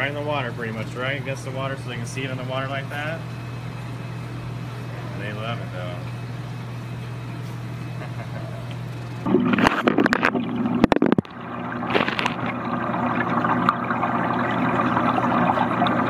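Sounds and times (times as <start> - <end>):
underwater bubbling and gurgling: 9.1 - 16.0
microphone knocks and splashes: 9.3 - 12.5.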